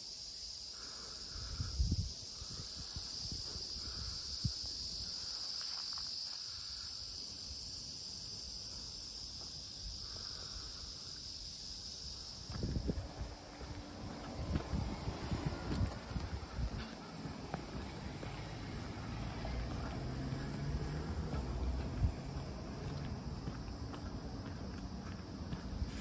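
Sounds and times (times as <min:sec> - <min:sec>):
insects chorus: 0:00.0 - 0:26.0
wind buffeting microphone: 0:01.3 - 0:05.4, 0:11.2 - 0:26.0.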